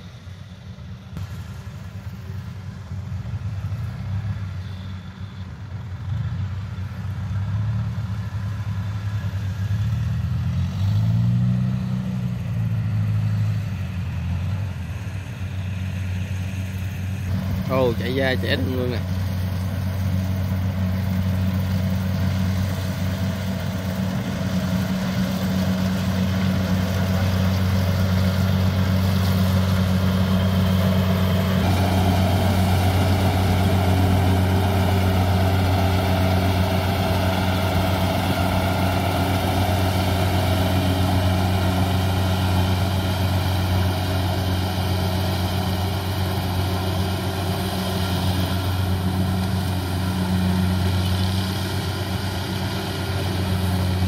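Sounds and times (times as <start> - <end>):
combine harvester engine droning: 0.0 - 54.0.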